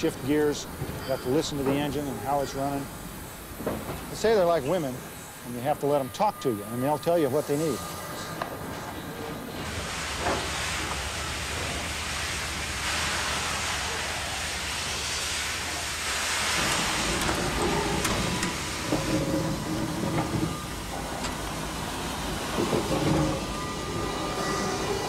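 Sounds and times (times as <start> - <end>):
locomotive running gear clanking: 0.0 - 2.9, 16.4 - 25.0
steam hissing: 0.0 - 25.0.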